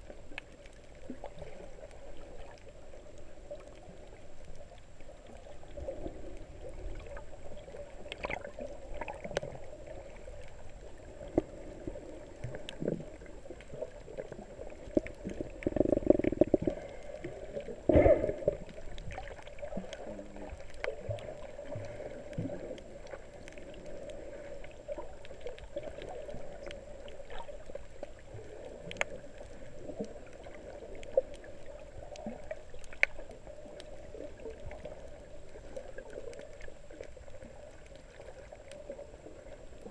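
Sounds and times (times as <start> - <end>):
muffled underwater sloshing: 0.0 - 39.9
sharp underwater clicks: 8.0 - 9.5, 12.4 - 17.3.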